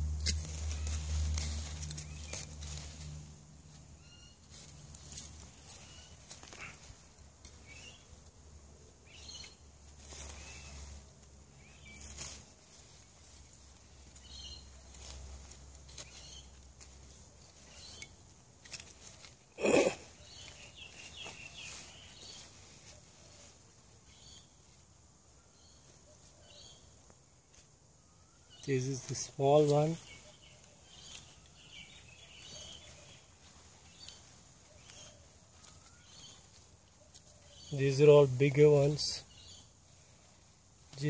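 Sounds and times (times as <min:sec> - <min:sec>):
hands digging in soil: 0:00.0 - 0:25.0, 0:28.5 - 0:41.0
faint bird chirps: 0:04.0 - 0:04.6, 0:28.0 - 0:41.0.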